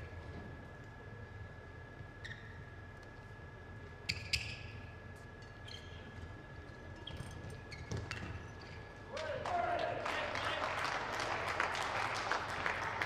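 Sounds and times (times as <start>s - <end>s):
faint high hum: 0.0s - 13.0s
shoes squeaking on court: 2.0s - 3.4s, 4.0s - 9.0s.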